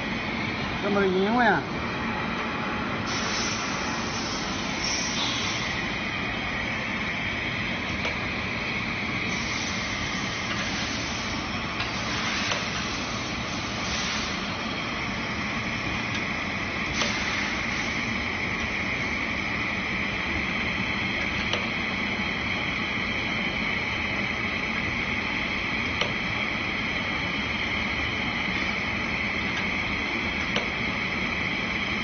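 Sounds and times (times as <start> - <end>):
filling machine hum and hiss: 0.0 - 32.0
short machine hisses: 3.1 - 5.8, 13.6 - 14.5, 16.9 - 18.0.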